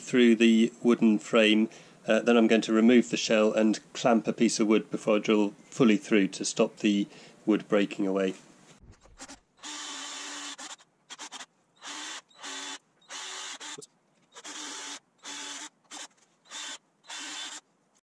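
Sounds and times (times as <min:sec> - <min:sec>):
power drill boring into wood: 0:09.2 - 0:17.6.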